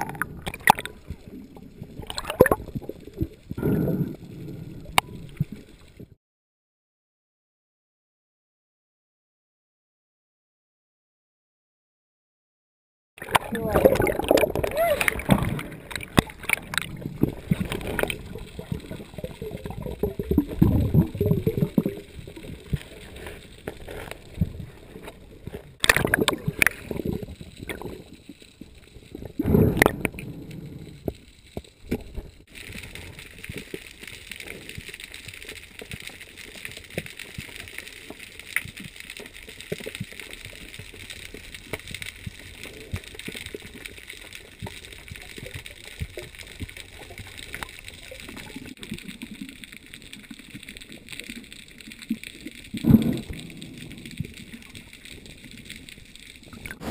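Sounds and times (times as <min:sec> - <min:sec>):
muffled underwater gurgling: 0:00.0 - 0:06.2, 0:13.2 - 0:28.2, 0:28.9 - 0:31.1.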